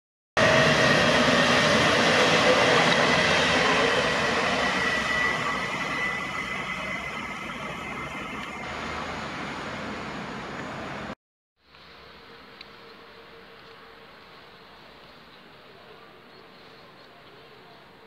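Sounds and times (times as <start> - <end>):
steady high tone: 0.4 - 9.0
train passing: 0.4 - 11.2.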